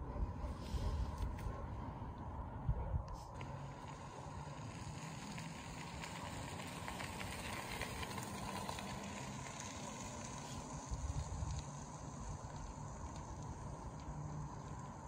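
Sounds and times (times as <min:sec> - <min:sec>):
wind on microphone: 0:00.0 - 0:03.5.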